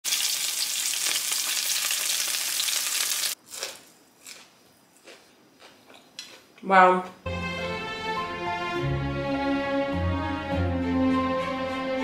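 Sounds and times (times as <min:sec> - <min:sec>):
food sizzling in a frying pan: 0:00.0 - 0:03.4.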